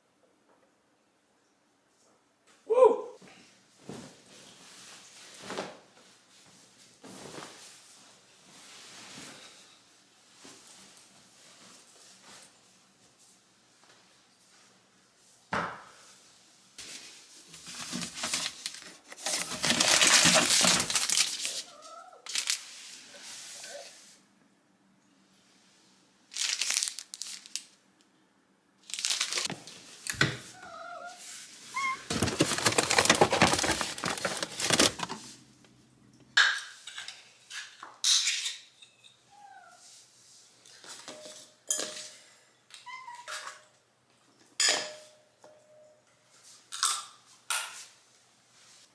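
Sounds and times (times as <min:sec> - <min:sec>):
plastic packet crinkling and tearing: 0:17.7 - 0:21.6, 0:22.3 - 0:22.6, 0:26.3 - 0:27.8, 0:28.8 - 0:29.5, 0:31.8 - 0:35.2.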